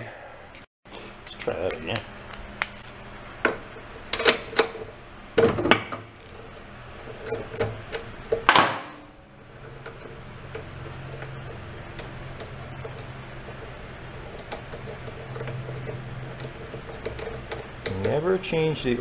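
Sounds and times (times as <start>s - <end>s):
metal socket clinking: 1.6s - 3.2s, 6.2s - 6.4s, 7.0s - 7.8s.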